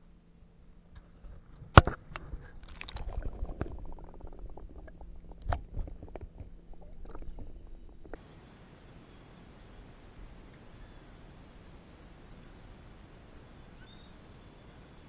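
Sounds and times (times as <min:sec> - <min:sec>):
muffled underwater sloshing: 0:01.0 - 0:08.6
underwater clicks and knocks: 0:01.3 - 0:08.2.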